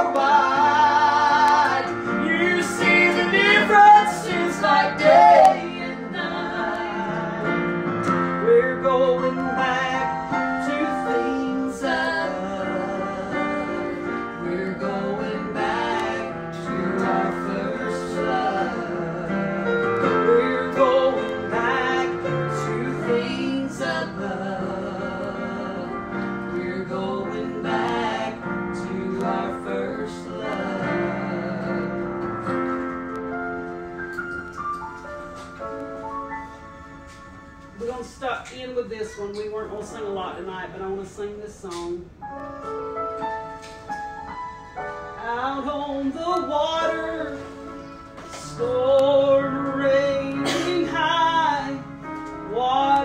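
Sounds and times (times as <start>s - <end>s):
woman singing with vibrato: 0.0s - 7.7s, 48.4s - 51.9s, 52.5s - 53.0s
electric keyboard chords: 0.0s - 40.1s, 42.0s - 53.0s.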